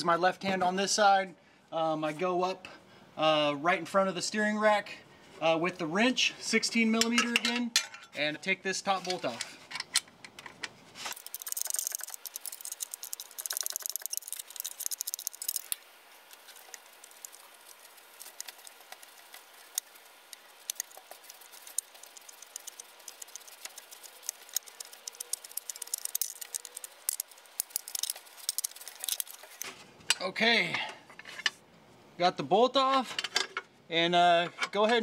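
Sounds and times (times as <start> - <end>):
ratcheting wrench clicking: 11.1 - 15.8, 16.6 - 29.6.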